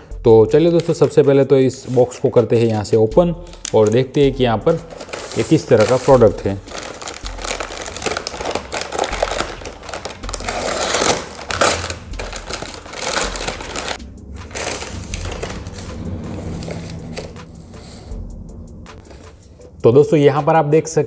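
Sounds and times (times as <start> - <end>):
paper bag crinkling and tearing: 3.5 - 18.0.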